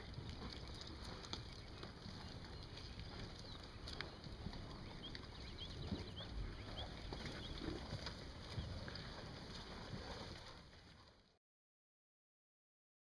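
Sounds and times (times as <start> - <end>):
small birds chirping: 0.0 - 8.8
wind rumble on microphone: 0.0 - 10.4.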